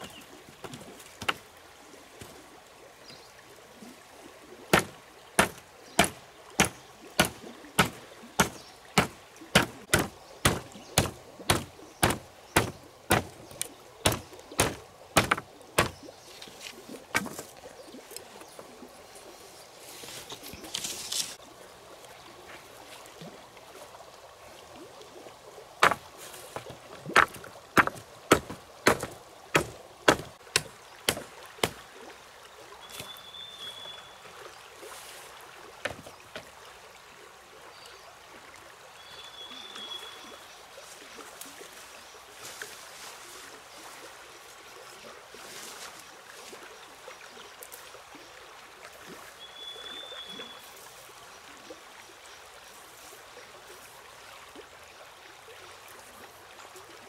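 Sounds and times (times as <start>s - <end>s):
sharp knocks: 4.7s - 13.4s, 14.0s - 16.0s, 25.8s - 26.0s, 26.6s - 31.8s.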